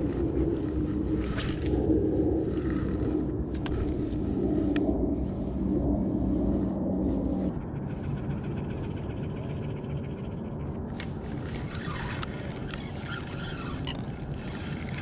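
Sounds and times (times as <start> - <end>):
low rumble: 0.0 - 13.1
fishing reel ticking: 10.9 - 15.0.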